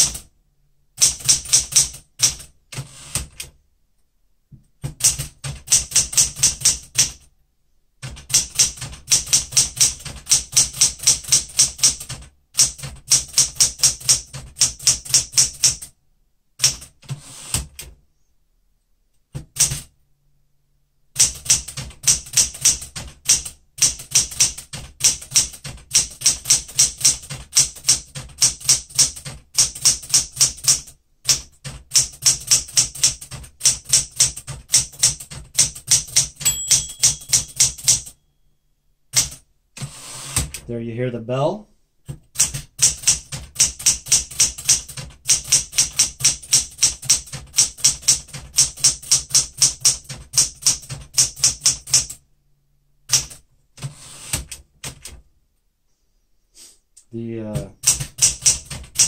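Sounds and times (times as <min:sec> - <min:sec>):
manual typewriter keystrokes: 0:01.0 - 0:03.6, 0:04.8 - 0:07.3, 0:08.0 - 0:15.9, 0:16.6 - 0:18.0, 0:19.3 - 0:19.9, 0:21.2 - 0:38.2, 0:39.1 - 0:40.7, 0:42.1 - 0:52.2, 0:53.1 - 0:55.2, 0:57.5 - 0:59.0.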